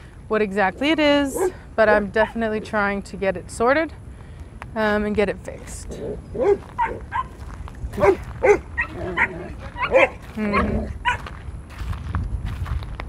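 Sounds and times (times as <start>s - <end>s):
puppies yipping and barking: 6.3s - 7.4s, 8.0s - 11.2s
puppy drawn-out yelp: 6.4s - 7.4s, 8.0s - 11.2s.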